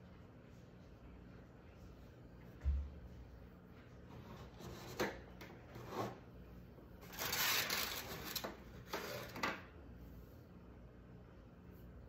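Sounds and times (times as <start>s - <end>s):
scraping rustle: 7.0s - 9.4s.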